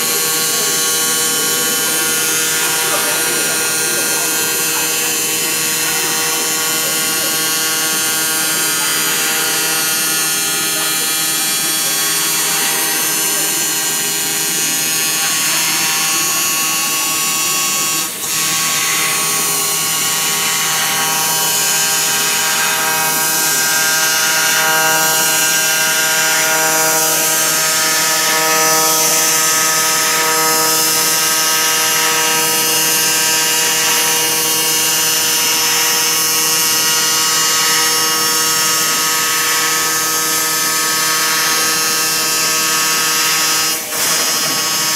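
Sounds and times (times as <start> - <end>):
laser cutting machine whine: 0.0 - 44.9.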